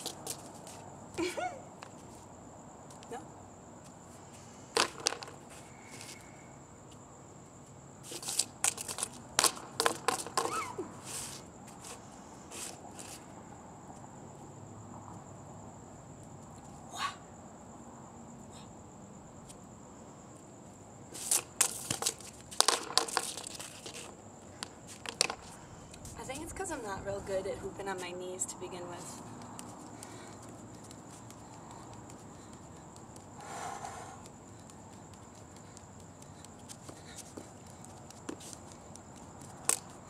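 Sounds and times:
hula hoops clattering on concrete: 0.0s - 2.3s, 4.7s - 6.2s, 8.0s - 13.2s, 21.1s - 40.0s.

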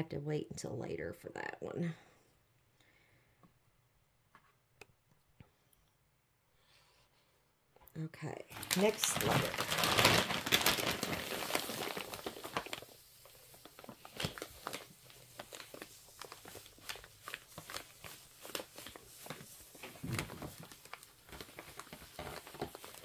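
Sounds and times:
silica gel crinkles and ticks: 7.9s - 23.0s
plastic bag rustling: 8.5s - 23.0s.

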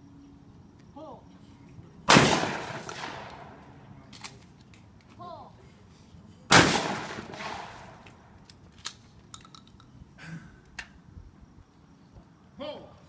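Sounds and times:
shotgun blast echoing: 2.1s - 3.5s, 6.5s - 8.0s.

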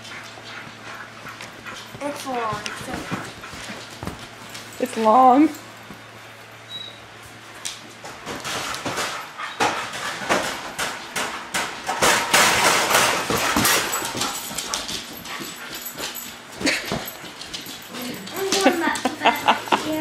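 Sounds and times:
dog making noises: 0.0s - 3.9s.

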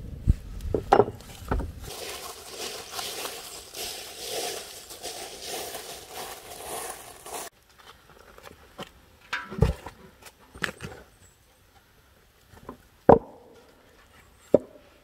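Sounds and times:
objects being handled: 1.1s - 7.5s.

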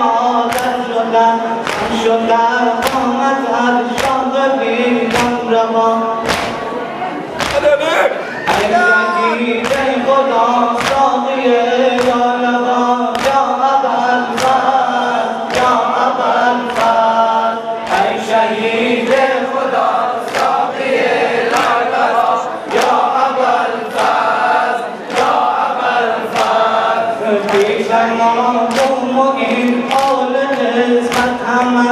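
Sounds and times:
men chanting a lament: 0.0s - 6.7s, 7.5s - 31.9s
hands slapping chests: 1.6s - 2.0s, 6.3s - 6.6s, 7.4s - 7.7s.

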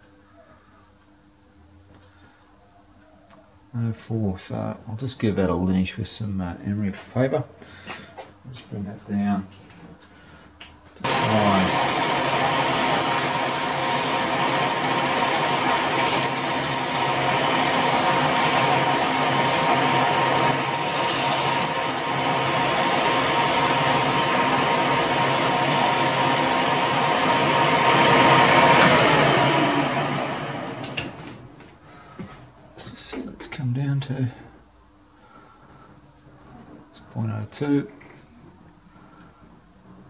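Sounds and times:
emery cloth hissing on shaft: 11.0s - 28.1s
metal lathe running: 11.0s - 31.1s.

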